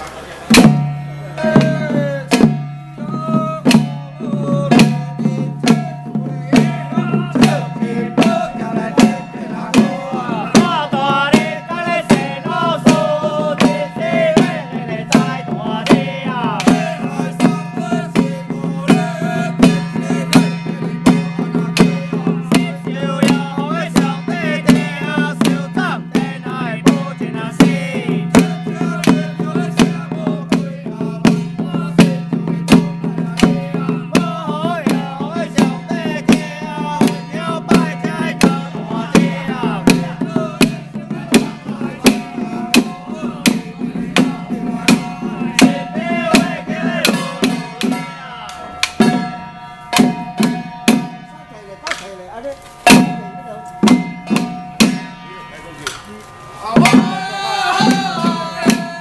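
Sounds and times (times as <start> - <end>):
hand drums and cymbals striking: 0.0 - 59.0
wavering melody: 33.0 - 59.0.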